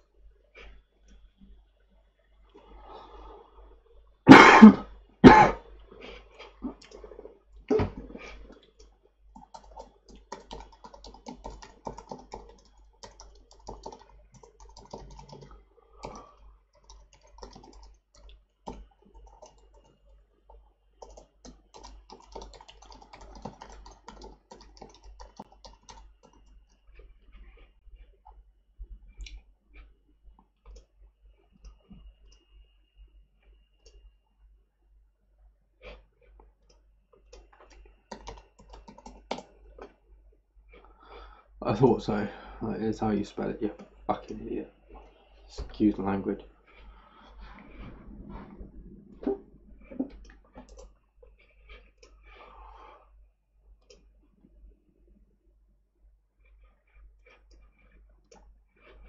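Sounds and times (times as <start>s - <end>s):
man coughing: 4.3s - 5.6s
computer keyboard typing: 8.6s - 26.8s, 36.7s - 39.6s, 50.2s - 50.9s.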